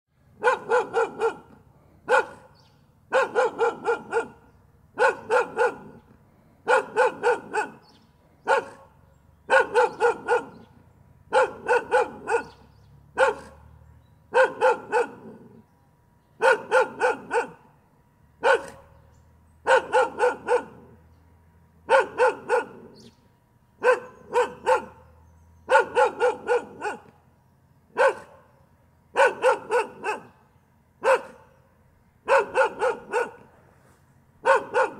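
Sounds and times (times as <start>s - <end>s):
dog barking: 0.4s - 6.0s, 6.6s - 13.7s, 14.3s - 15.6s, 16.4s - 17.7s, 18.4s - 19.0s, 19.6s - 21.0s, 21.8s - 23.1s, 23.8s - 27.1s, 27.9s - 28.5s, 29.1s - 30.4s, 31.0s - 31.6s, 32.2s - 33.5s, 34.4s - 34.9s.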